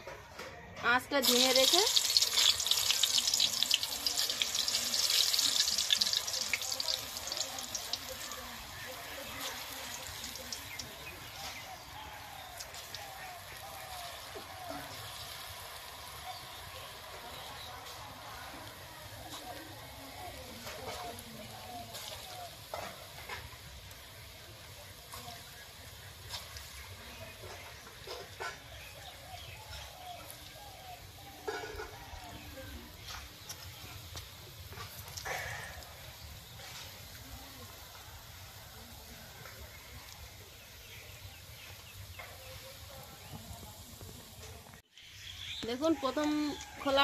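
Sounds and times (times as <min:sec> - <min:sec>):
fritters sizzling in hot oil: 0:01.0 - 0:47.0
batter splashing into oil: 0:01.2 - 0:11.9, 0:12.5 - 0:18.3.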